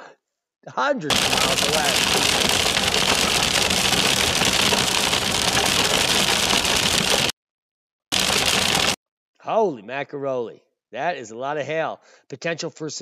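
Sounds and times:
hail pelting car: 1.1s - 7.3s, 8.1s - 9.0s.

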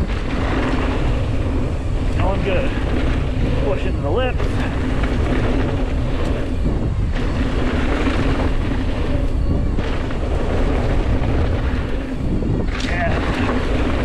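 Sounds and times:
bike tyres rumbling: 0.0s - 14.0s
wind buffeting microphone: 0.0s - 14.0s.

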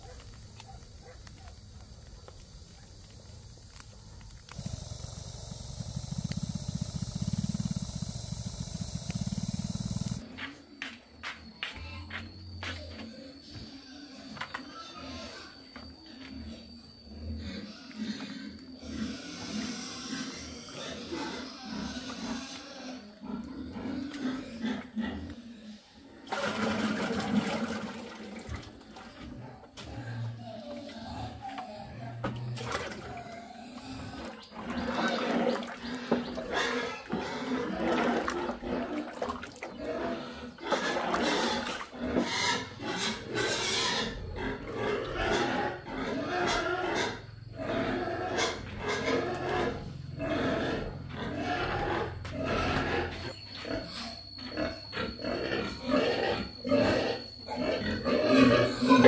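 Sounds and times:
pigs squealing and grunting: 13.3s - 59.0s.

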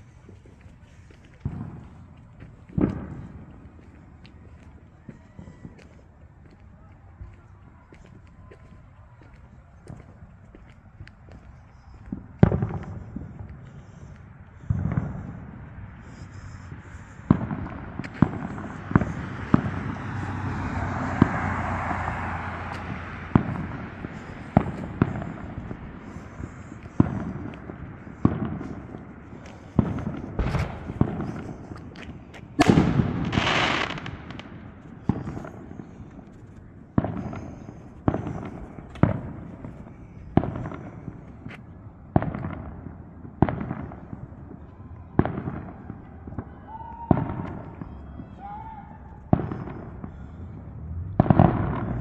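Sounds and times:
sharp echoing bangs: 14.6s - 36.3s.

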